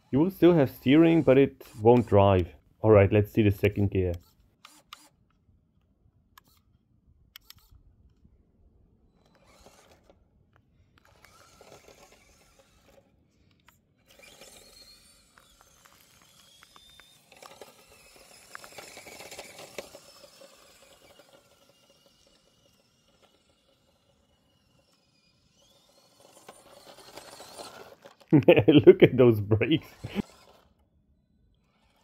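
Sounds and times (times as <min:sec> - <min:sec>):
toy motor and gearbox whine: 0:00.0 - 0:02.6, 0:03.4 - 0:05.6, 0:06.3 - 0:08.2, 0:09.0 - 0:32.0
tyres crunching over gravel: 0:14.5 - 0:21.4.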